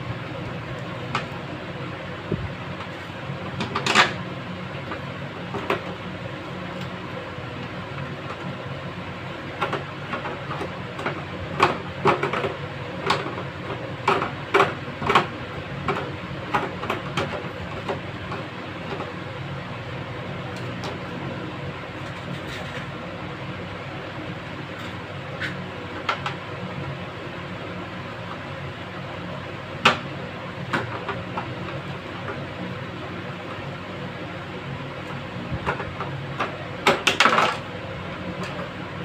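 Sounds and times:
low background hum: 0:00.0 - 0:39.0.

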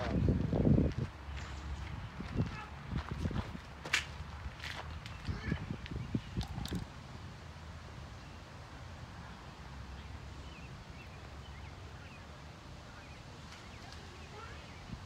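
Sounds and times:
wind rumble on microphone: 0:00.0 - 0:07.1, 0:14.8 - 0:15.0.

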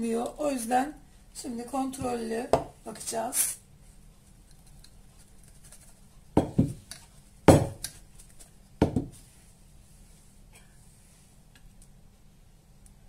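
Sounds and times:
clay pot knocking on cutting board: 0:02.0 - 0:02.8, 0:06.4 - 0:06.8, 0:07.5 - 0:07.9, 0:08.8 - 0:09.2.

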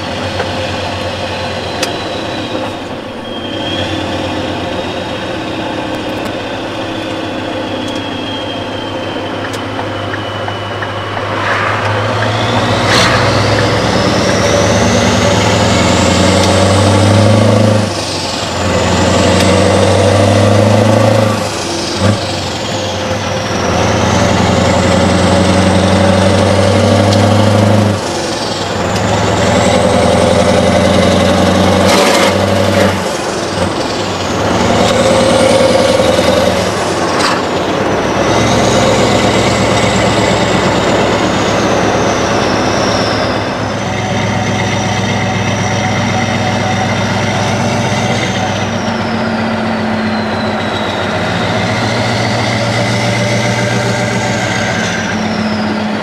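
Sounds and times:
truck engine under load: 0:00.0 - 0:56.0
high whistle: 0:01.4 - 0:16.0, 0:37.9 - 0:56.0.

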